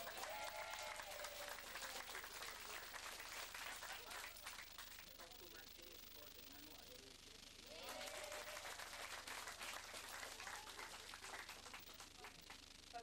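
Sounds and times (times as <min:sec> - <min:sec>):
group of people clapping: 0:00.0 - 0:05.6, 0:07.7 - 0:12.6.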